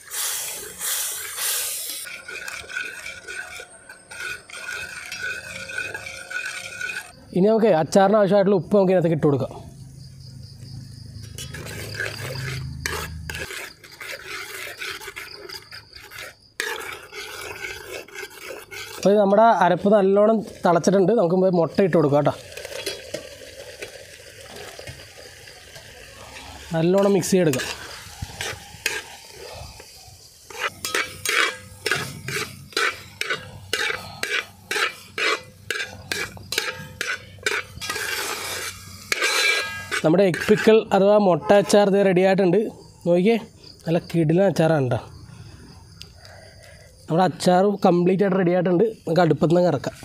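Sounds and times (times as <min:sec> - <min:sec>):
steel ladle scraping metal pot: 0:00.0 - 0:07.3, 0:11.2 - 0:42.0
masala simmering hiss: 0:00.0 - 0:09.2, 0:11.4 - 0:44.3.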